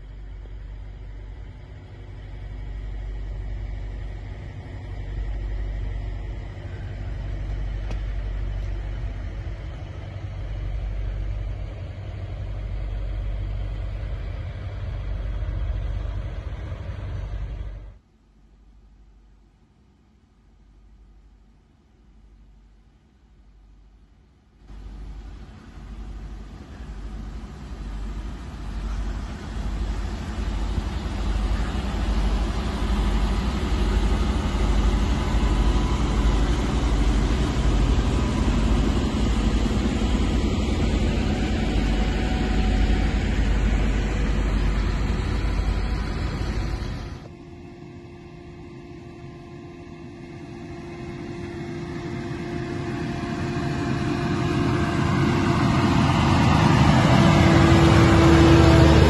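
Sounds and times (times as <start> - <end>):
heavy truck engines rumbling: 0.0 - 18.0, 24.7 - 47.8, 51.2 - 59.0
truck driving on slushy road: 0.0 - 18.0, 24.7 - 47.3, 51.3 - 59.0.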